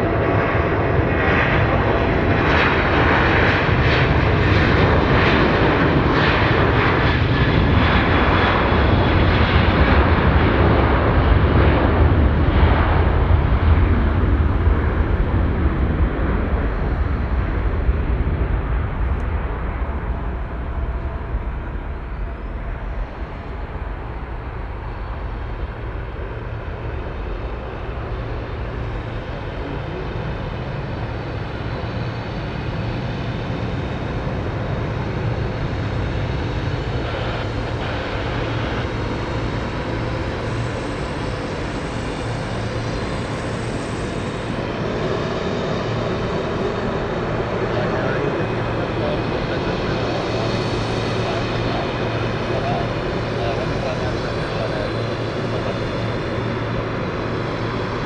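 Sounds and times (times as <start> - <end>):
turboprop aircraft droning: 0.0 - 58.0.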